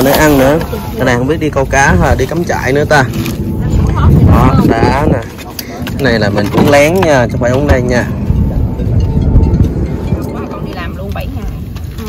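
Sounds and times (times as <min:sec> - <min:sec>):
bass-heavy music: 0:06.0 - 0:12.0.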